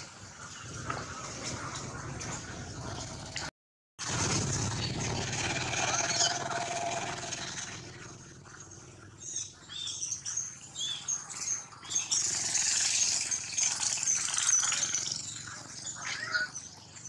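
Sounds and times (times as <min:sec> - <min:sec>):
infant monkey crying: 0:16.0 - 0:16.6.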